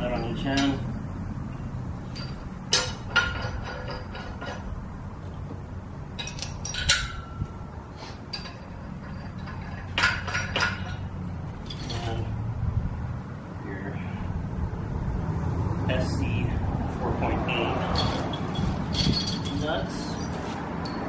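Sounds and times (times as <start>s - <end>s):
metal bolts and washers clinking: 0.0s - 5.4s, 6.1s - 12.3s, 17.8s - 21.0s.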